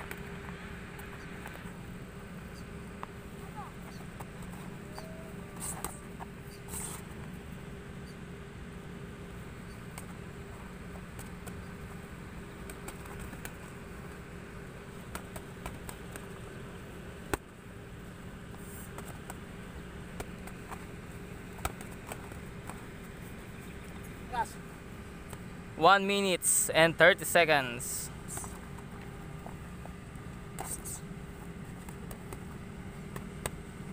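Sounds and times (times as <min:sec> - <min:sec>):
steady low hum: 0:00.0 - 0:33.9
boxing gloves tapping: 0:12.5 - 0:13.8, 0:21.5 - 0:23.1, 0:31.7 - 0:33.7.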